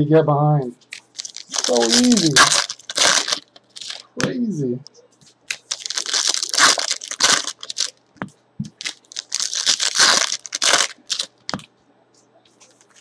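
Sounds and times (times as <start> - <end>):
plastic wrapper tearing and crinkling: 0.9 - 4.3, 5.5 - 8.0, 8.7 - 11.7.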